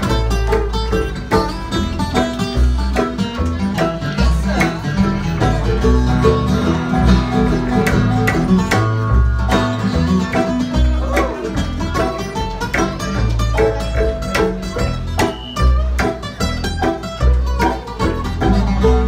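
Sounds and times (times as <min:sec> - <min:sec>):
bluegrass band playing: 0:00.0 - 0:19.0
upright bass plucking: 0:00.0 - 0:19.0.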